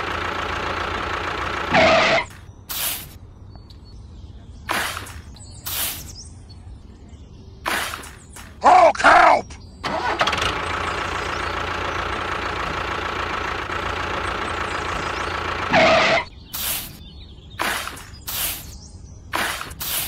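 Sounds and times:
model tractor engine rattle: 0.0 - 1.8, 9.8 - 15.8
short scraping bursts: 15.8 - 17.0, 17.6 - 20.0.

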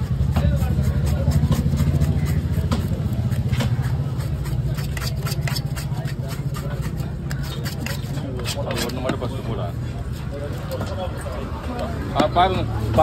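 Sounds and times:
knife chopping on wooden block: 0.0 - 9.3.

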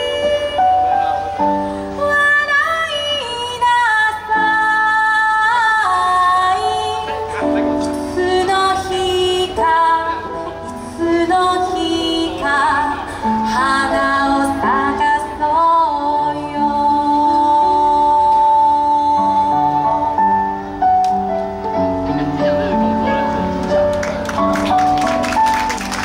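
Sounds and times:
woman singing: 0.0 - 1.1, 1.9 - 7.2, 8.0 - 20.5
instrumental accompaniment: 6.6 - 26.0.

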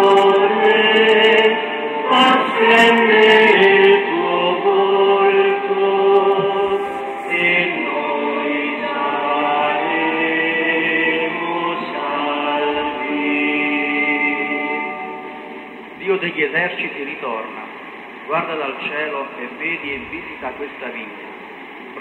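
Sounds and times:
voices singing slow chant: 0.0 - 16.0.

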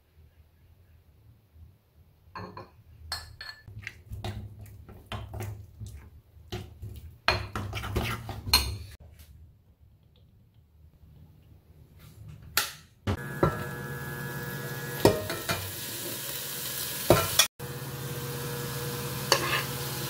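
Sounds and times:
spoon scraping ceramic bowl: 19.3 - 19.8.

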